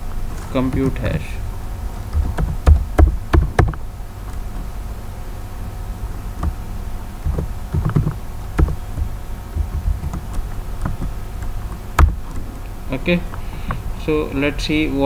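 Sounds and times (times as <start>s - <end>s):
steady background hum: 0.0s - 15.0s
keystrokes on computer keyboard: 2.1s - 3.8s, 7.3s - 12.4s.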